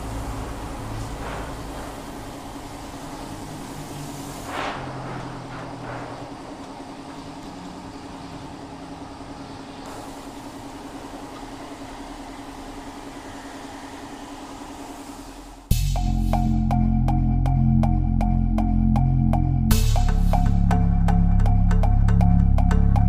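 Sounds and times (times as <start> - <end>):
welding torch flame hissing: 0.0 - 8.4, 9.6 - 15.7
constant low hum: 0.0 - 23.0.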